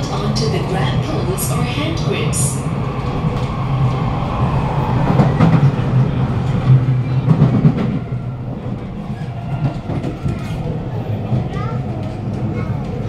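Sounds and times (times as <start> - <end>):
train passing close by: 0.0 - 13.0.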